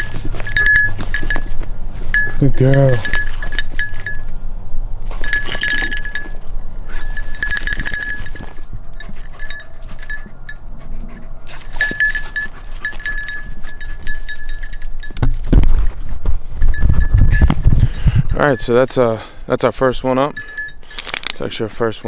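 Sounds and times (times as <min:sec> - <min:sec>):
small collar bell jingling: 0:00.0 - 0:04.4, 0:05.1 - 0:10.6, 0:11.5 - 0:15.5, 0:16.6 - 0:19.1, 0:20.2 - 0:21.5.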